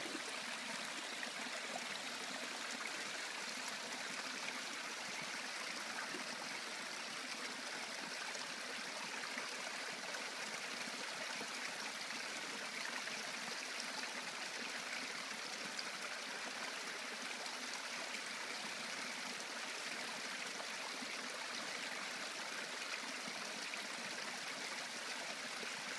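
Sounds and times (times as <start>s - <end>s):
brook trickling over stones: 0.0s - 25.9s.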